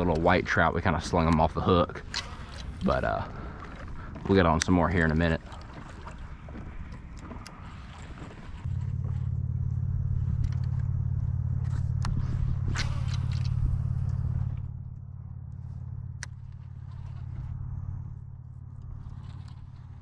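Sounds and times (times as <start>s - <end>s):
motor humming: 5.3s - 20.0s.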